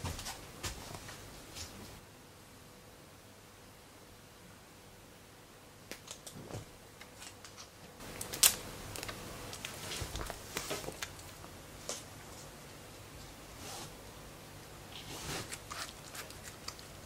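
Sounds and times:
plastic tearing: 0:07.1 - 0:11.3, 0:15.4 - 0:17.0
plastic wrapper crinkling: 0:07.1 - 0:12.0, 0:15.4 - 0:17.0.

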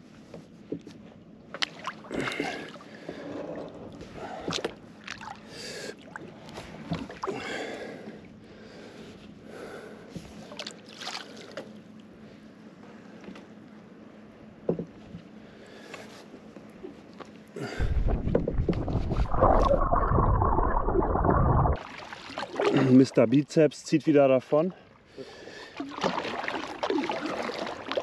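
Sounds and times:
kayak paddle splashing in water: 0:17.7 - 0:23.1, 0:25.6 - 0:28.0.

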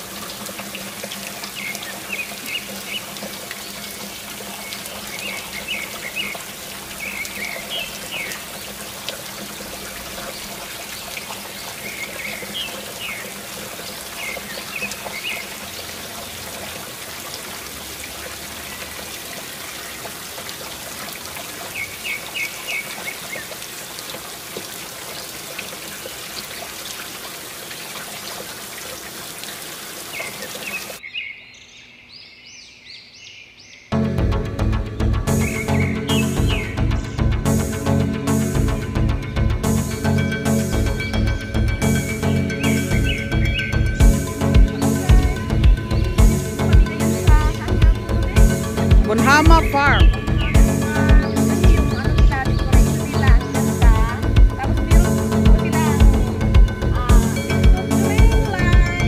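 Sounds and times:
small birds chirping: 0:01.4 - 0:16.8, 0:41.9 - 0:59.0.

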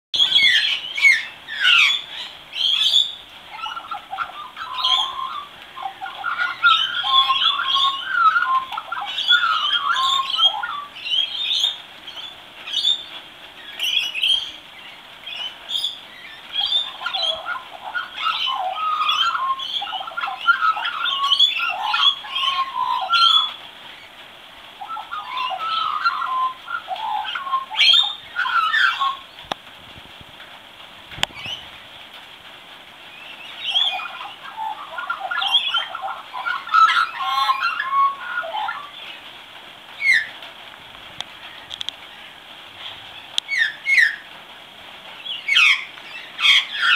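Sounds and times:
magpie warbling song: 0:00.2 - 0:13.0, 0:15.3 - 0:23.6, 0:24.8 - 0:29.2, 0:33.5 - 0:39.0.

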